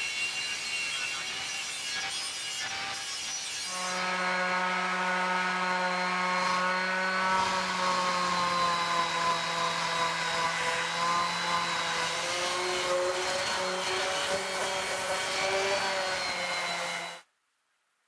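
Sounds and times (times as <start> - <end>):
orbital sander running on wood: 3.7 - 17.2.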